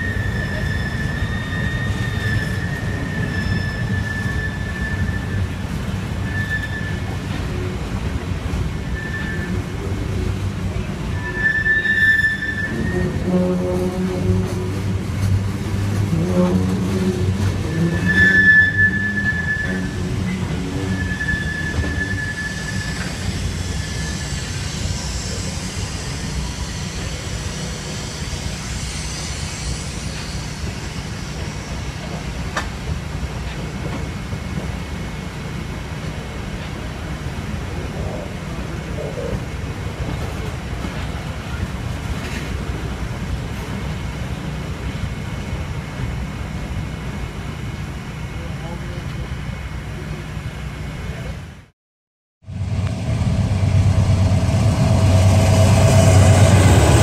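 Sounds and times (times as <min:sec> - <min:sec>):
high wheel squeal: 0:00.0 - 0:07.7, 0:08.8 - 0:10.2, 0:10.8 - 0:14.9, 0:15.9 - 0:32.7
train wheels rumbling on rail: 0:00.0 - 0:51.7, 0:52.4 - 0:57.0.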